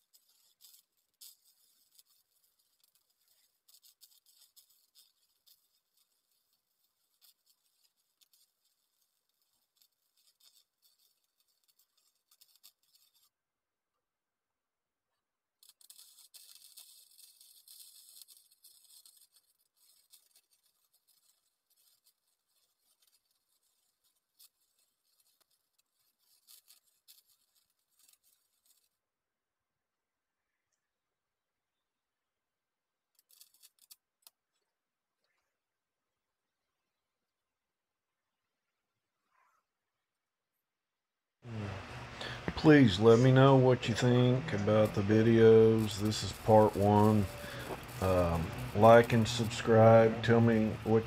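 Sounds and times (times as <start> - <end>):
welder arc crackling and popping: 0.0 - 13.4, 15.6 - 29.0, 33.1 - 34.6, 41.4 - 51.0.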